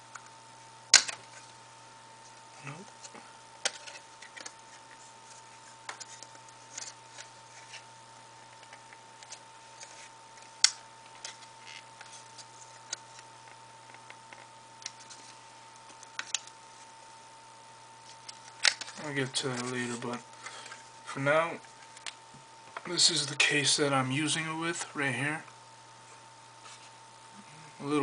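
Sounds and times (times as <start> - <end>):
sharp plastic snap: 0.9 - 1.2.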